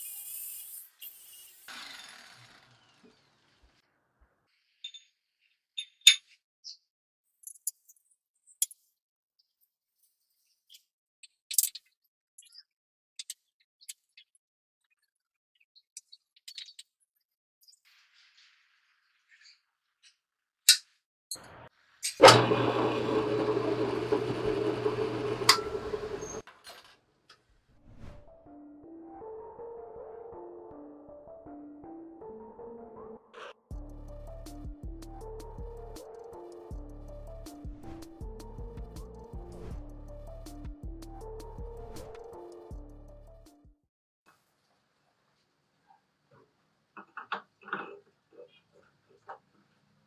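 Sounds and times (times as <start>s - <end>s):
lathe motor humming and whirring: 22.2s - 26.4s.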